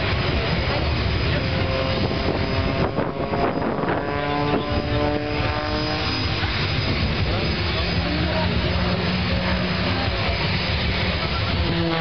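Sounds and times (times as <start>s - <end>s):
wind buffeting microphone: 0.0s - 7.9s
propeller plane engine droning: 0.0s - 12.0s.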